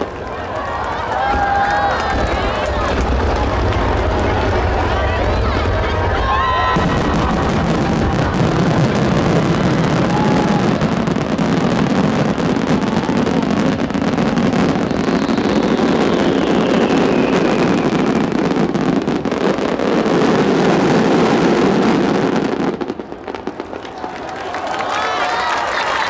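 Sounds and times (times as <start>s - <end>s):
firework bursts and crackle: 0.0s - 26.0s
high falling firework whistle: 1.1s - 20.2s.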